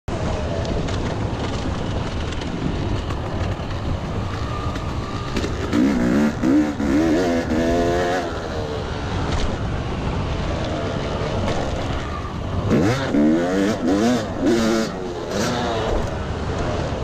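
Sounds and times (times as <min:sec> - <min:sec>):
motorcycle engine revving: 0:02.3 - 0:09.3, 0:10.2 - 0:17.0.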